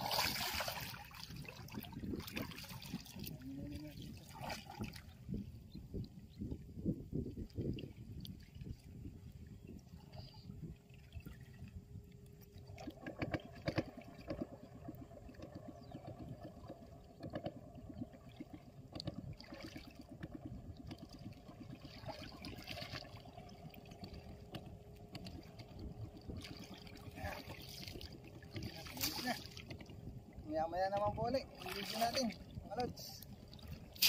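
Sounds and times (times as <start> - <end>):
small splashes: 0.0 - 5.3, 12.4 - 30.0, 31.0 - 34.0
water sloshing and trickling: 0.0 - 34.0.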